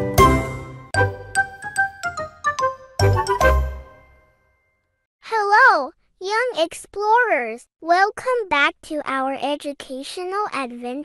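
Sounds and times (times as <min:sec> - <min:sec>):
cheerful logo jingle: 0:00.0 - 0:04.8.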